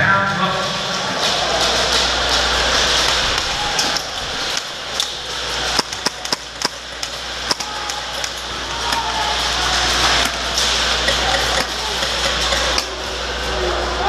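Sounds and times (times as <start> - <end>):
hum and hiss of hall: 0.0 - 14.0.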